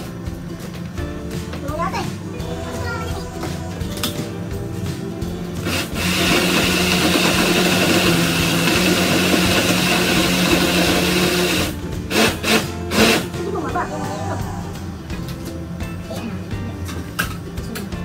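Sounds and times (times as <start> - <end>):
electric blender running: 5.6 - 13.3.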